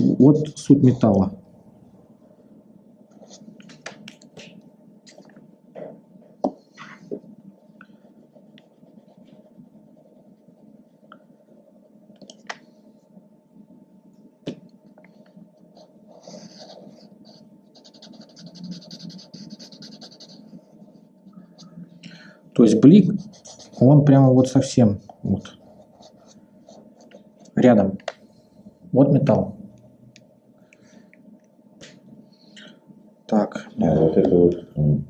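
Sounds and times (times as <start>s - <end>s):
faint steady hum: 0.0s - 35.0s
marker rubbing on paper: 8.0s - 10.7s, 15.8s - 21.8s, 22.7s - 24.1s.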